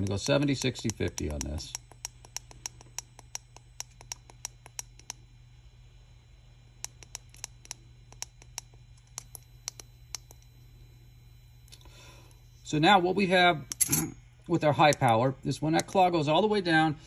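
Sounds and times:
push buttons clicking: 0.0s - 5.2s
steady low hum: 0.0s - 17.0s.

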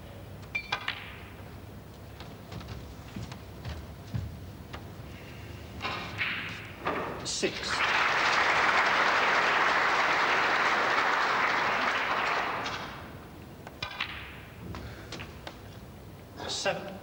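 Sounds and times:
snooker balls clicking: 0.4s - 2.9s, 12.5s - 15.7s
audience applauding: 7.6s - 13.2s.

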